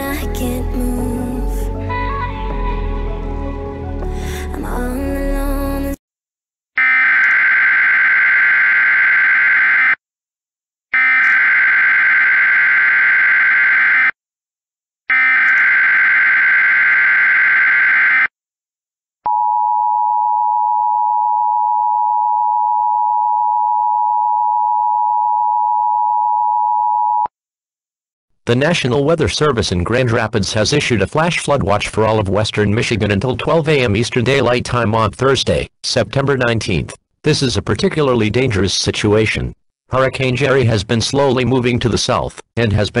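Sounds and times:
song playing: 0:00.0 - 0:06.0.

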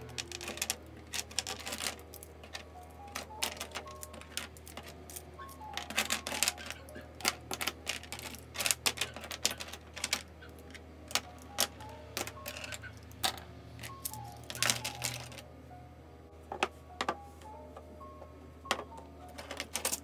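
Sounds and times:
plastic pens clicking and clattering: 0:00.0 - 0:15.4, 0:18.7 - 0:20.0.

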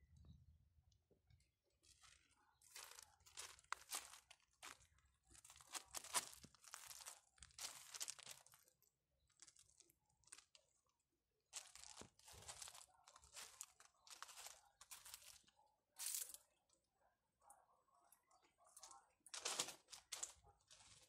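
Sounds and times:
footsteps crunching on gravel: 0:01.9 - 0:08.6, 0:11.6 - 0:16.4, 0:19.4 - 0:21.0.

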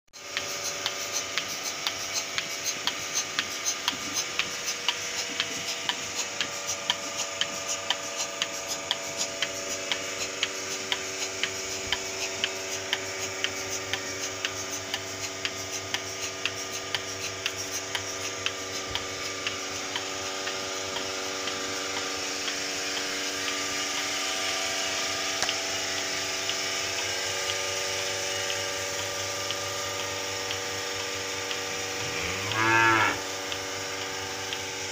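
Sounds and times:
milking pulsator ticking: 0:00.2 - 0:34.9
vacuum pump motor hum: 0:00.2 - 0:34.9.

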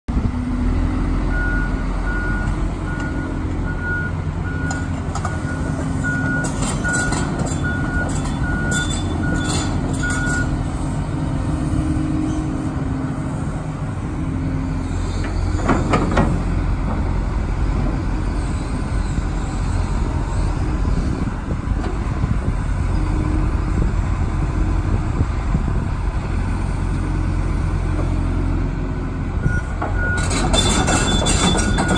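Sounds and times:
excavator diesel engine running: 0:00.1 - 0:31.9
excavator bucket clatter: 0:29.8 - 0:31.9.

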